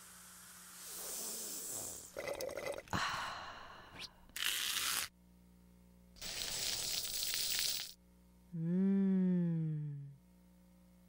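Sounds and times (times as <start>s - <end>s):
hiss bursts: 0.0s - 2.2s, 6.2s - 8.0s.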